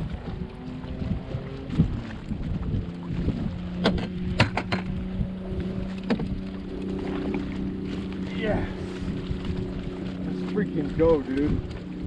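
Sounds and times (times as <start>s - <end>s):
wind buffeting microphone: 0.0s - 12.0s
knocks on boat: 3.8s - 5.0s, 5.8s - 7.5s.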